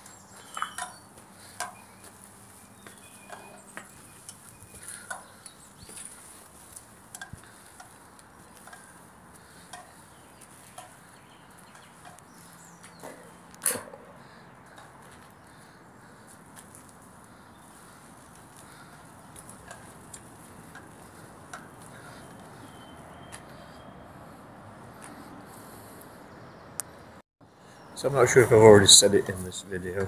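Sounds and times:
footsteps on gritty concrete: 0.0 - 13.7, 14.6 - 22.7.

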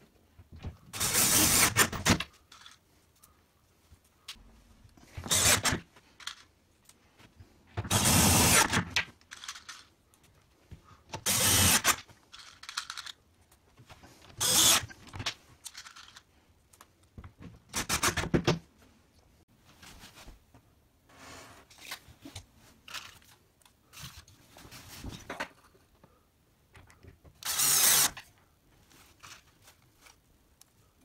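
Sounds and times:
cordless driver driving screws: 5.2 - 5.8, 11.2 - 12.0, 14.4 - 15.0, 27.4 - 28.2.

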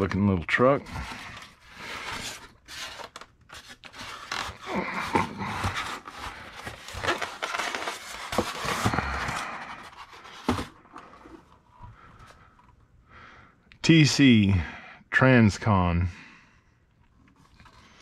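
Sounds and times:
styrofoam squeaking and scraping: 0.8 - 10.5.

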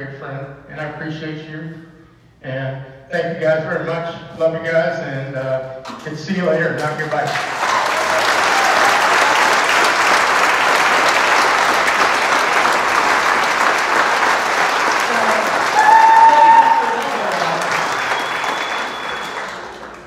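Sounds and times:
audience applauding: 7.0 - 20.0
crowd cheering: 7.3 - 20.0.

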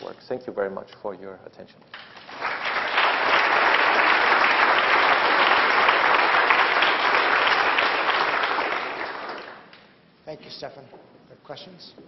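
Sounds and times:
audience applauding: 2.0 - 9.9.

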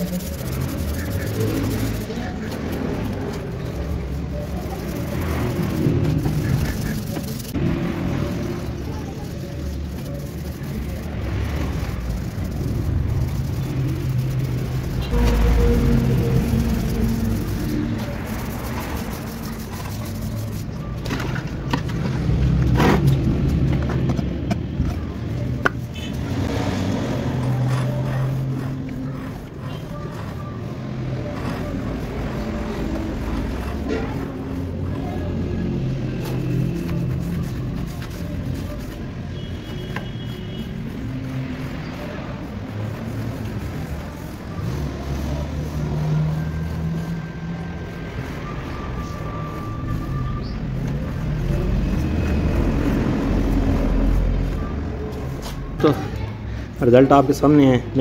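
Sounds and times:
vehicle engine humming: 0.0 - 57.3.

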